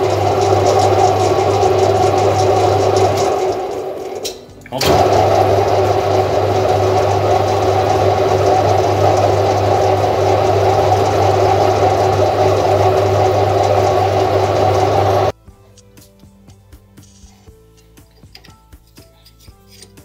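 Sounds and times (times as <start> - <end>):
metal lathe running: 0.0 - 15.3.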